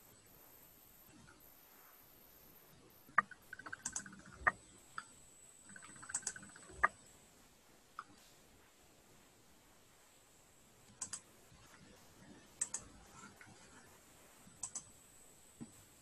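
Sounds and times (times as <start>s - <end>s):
computer keyboard clicking: 3.2s - 4.6s, 5.7s - 6.9s, 11.0s - 11.2s, 14.6s - 14.9s.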